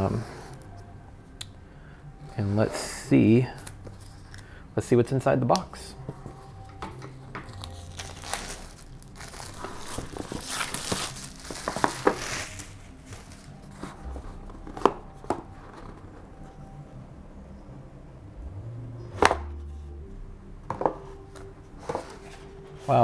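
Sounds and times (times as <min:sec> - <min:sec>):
plastic wrapping crinkling: 0:07.4 - 0:14.1.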